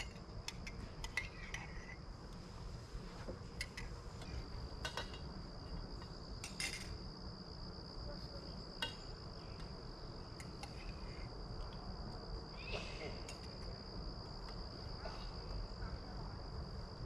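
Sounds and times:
insect trilling: 0:12.5 - 0:13.3.

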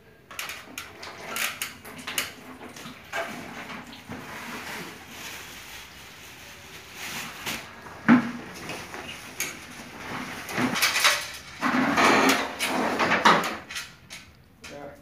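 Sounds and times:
bag rustling: 0:04.1 - 0:10.8.

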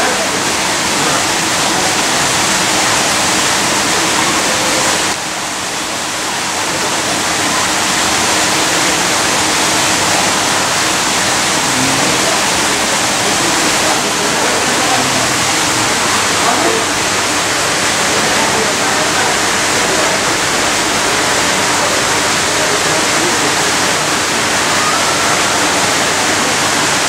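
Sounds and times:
loud rushing noise: 0:00.0 - 0:27.0.

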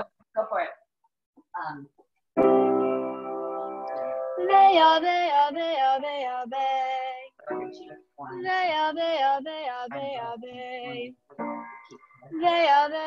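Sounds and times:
girl singing vocal warm-up: 0:04.4 - 0:13.0.

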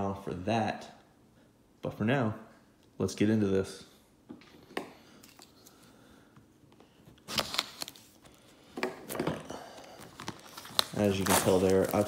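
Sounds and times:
plastic wrap crinkling: 0:07.2 - 0:08.4, 0:09.0 - 0:12.0.

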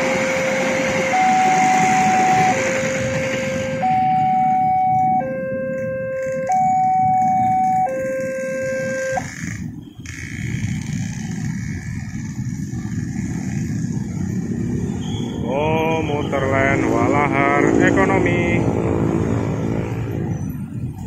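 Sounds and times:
crossing alarm two-tone signal: 0:00.0 - 0:11.0
car engine: 0:00.0 - 0:21.0
motorcycle engines: 0:00.0 - 0:21.0.

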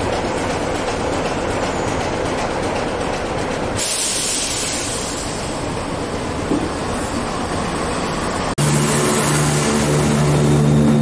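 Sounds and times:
diesel locomotive idling: 0:00.0 - 0:11.0
diesel train drawing in: 0:00.0 - 0:11.0
loud hiss: 0:03.8 - 0:05.6.

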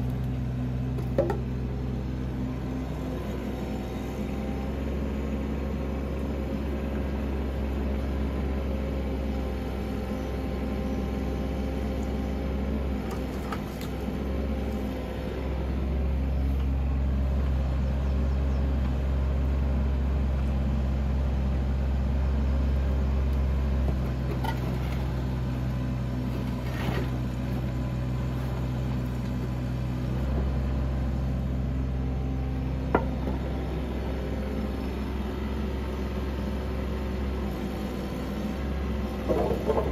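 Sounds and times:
diesel engine running: 0:00.0 - 0:39.9
knocks of logs handled: 0:00.9 - 0:01.6, 0:23.8 - 0:25.1, 0:32.8 - 0:33.5, 0:39.1 - 0:39.9.

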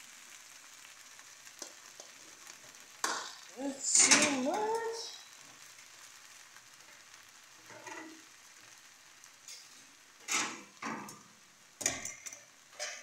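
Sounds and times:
faint steady hiss: 0:00.0 - 0:13.0
metal spatula scraping a pan: 0:07.6 - 0:08.3, 0:09.5 - 0:11.2, 0:11.8 - 0:13.0.

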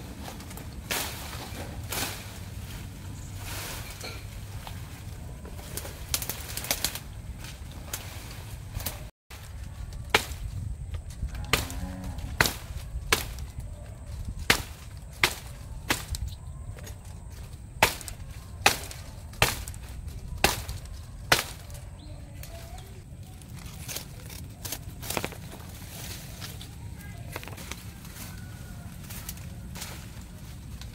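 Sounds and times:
machete chopping grass: 0:08.8 - 0:10.6, 0:11.4 - 0:13.6, 0:14.4 - 0:16.3, 0:17.8 - 0:21.8, 0:23.8 - 0:25.6.

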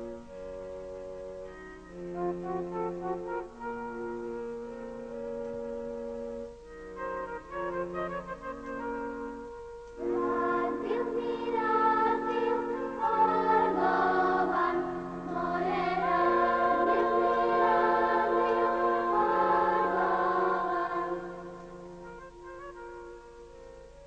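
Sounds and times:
quiet music: 0:00.0 - 0:24.0
choir singing sustained lines: 0:10.0 - 0:22.5.

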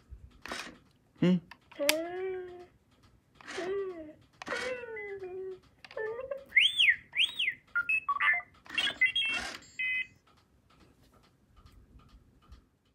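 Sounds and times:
robot beeps and whistles: 0:06.5 - 0:10.1.

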